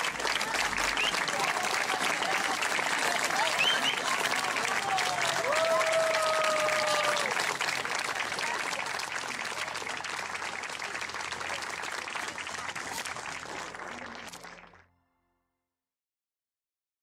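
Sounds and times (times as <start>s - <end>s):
audience applauding: 0.0s - 14.8s
person cheering: 3.3s - 7.4s.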